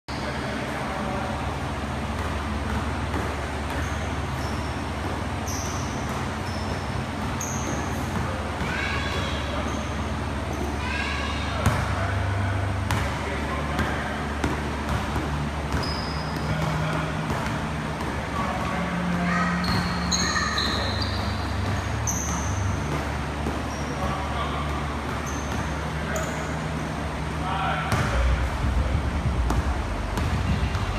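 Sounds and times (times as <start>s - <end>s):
low mechanical hum: 0.1s - 30.9s
rumbling gym background noise: 0.1s - 30.9s
basketball dribbling on court: 2.0s - 10.7s, 12.8s - 27.1s, 27.9s - 30.9s
sneakers squeaking on hardwood: 2.0s - 11.9s, 12.9s - 27.1s
short high squeaks: 3.8s - 8.1s, 15.8s - 16.6s, 19.3s - 22.8s, 25.1s - 26.5s.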